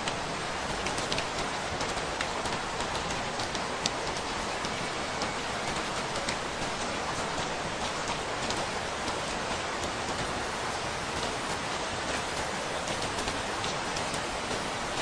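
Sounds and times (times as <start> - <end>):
raindrops ticking: 0.0 - 10.4
steady rain hissing: 0.0 - 15.0.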